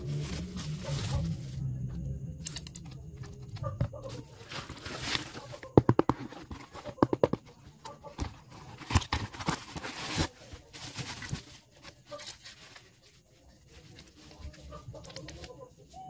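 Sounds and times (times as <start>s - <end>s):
plastic packaging rustling: 0.0s - 15.5s.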